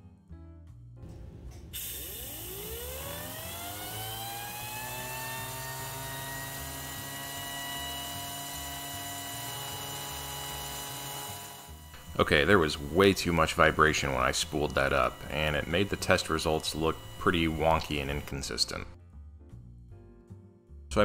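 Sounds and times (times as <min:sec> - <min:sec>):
turbine high whine: 0:01.1 - 0:19.0
compressed air hissing: 0:01.6 - 0:03.3.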